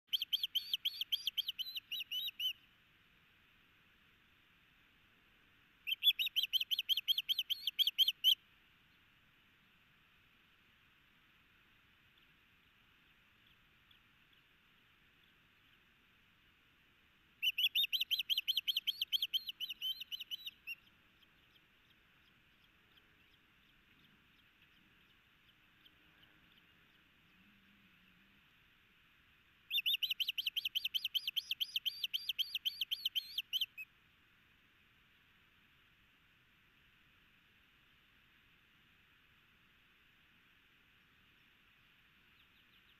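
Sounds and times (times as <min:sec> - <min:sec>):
faint steady hiss: 0:00.0 - 0:42.9
bird high whistled chirps: 0:00.1 - 0:02.6, 0:05.8 - 0:08.4, 0:17.4 - 0:21.6, 0:29.7 - 0:33.9.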